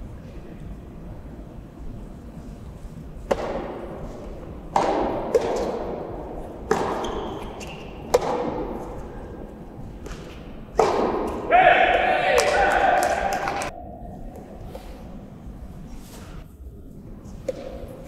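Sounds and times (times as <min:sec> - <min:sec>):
tennis ball struck by rackets: 0:03.3 - 0:09.0, 0:10.0 - 0:11.5.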